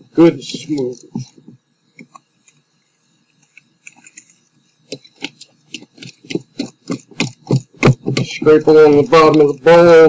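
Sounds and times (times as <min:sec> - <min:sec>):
batter stirred in a bowl: 0:03.4 - 0:10.0.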